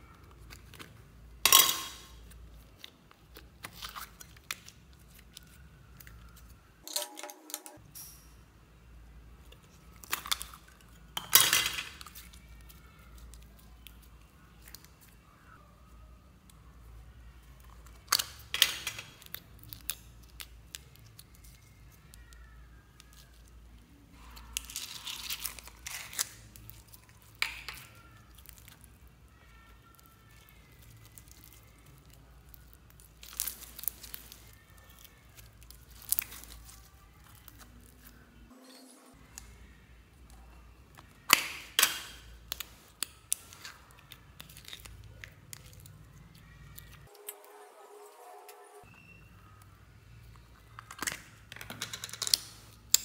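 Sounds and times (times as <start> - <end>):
slime crackling and popping: 17.8 - 23.6, 24.2 - 38.2, 40.9 - 47.1.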